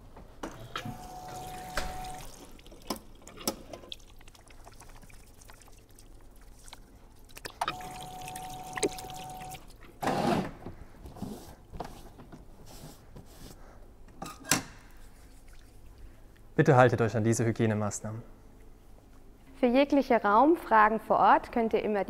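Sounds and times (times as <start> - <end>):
paper towel rustling: 11.1 - 13.8.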